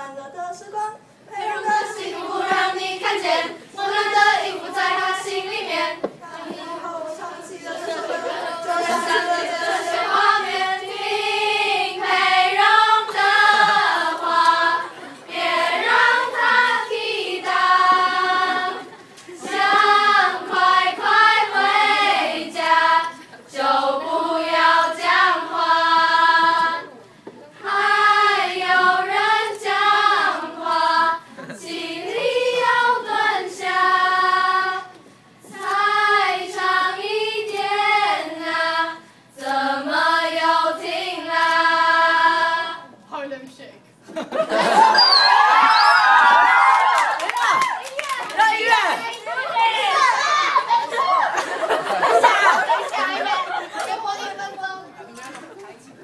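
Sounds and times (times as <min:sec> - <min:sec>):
choir of young voices singing: 0:01.3 - 0:27.0, 0:27.6 - 0:43.0.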